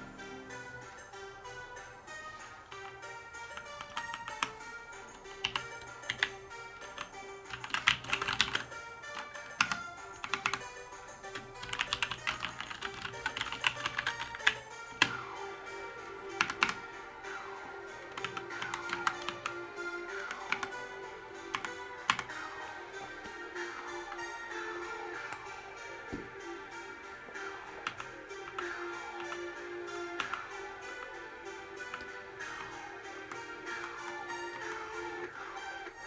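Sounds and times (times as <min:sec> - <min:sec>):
background music: 0:00.0 - 0:36.0
mechanical keyboard typing: 0:03.5 - 0:15.2, 0:16.3 - 0:16.8, 0:18.1 - 0:22.3, 0:27.5 - 0:31.2.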